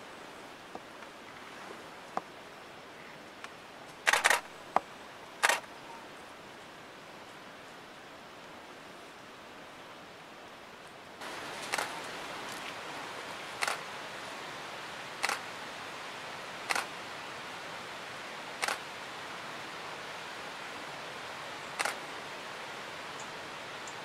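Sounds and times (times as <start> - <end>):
steady background hiss: 0.0 - 24.0
camera shutter clicking: 4.1 - 4.4, 5.4 - 5.7, 16.7 - 16.9, 21.8 - 22.0.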